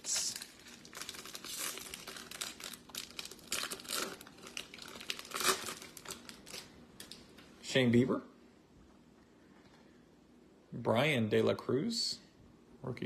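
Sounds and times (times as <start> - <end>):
foil wrapper crinkling: 0.0 - 7.4.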